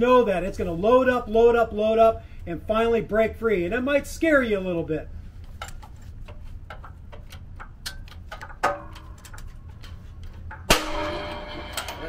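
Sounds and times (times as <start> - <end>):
loud metallic knock: 10.6 - 12.0.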